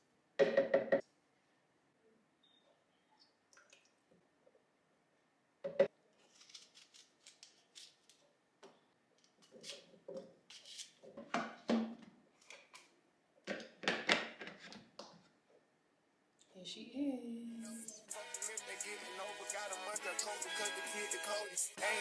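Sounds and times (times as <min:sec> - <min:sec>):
knife crunching through apple: 0:06.3 - 0:08.2.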